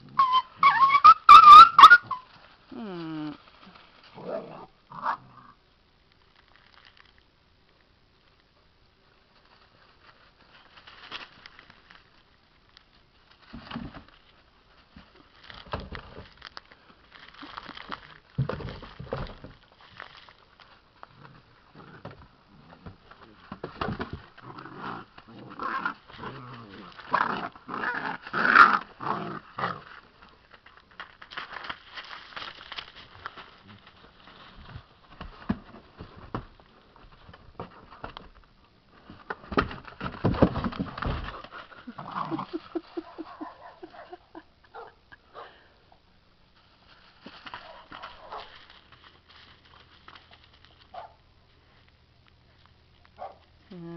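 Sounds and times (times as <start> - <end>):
puppies growling and whimpering: 0.0 - 2.0, 41.9 - 43.0.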